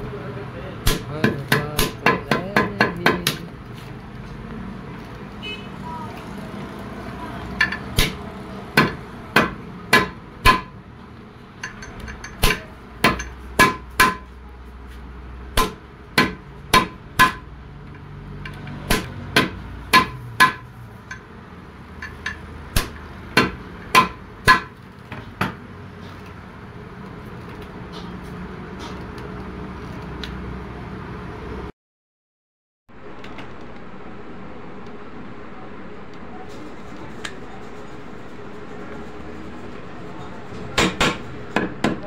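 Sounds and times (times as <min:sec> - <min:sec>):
hammer striking rivets: 0:08.8 - 0:10.7, 0:11.6 - 0:14.2, 0:18.9 - 0:20.6, 0:22.0 - 0:24.7.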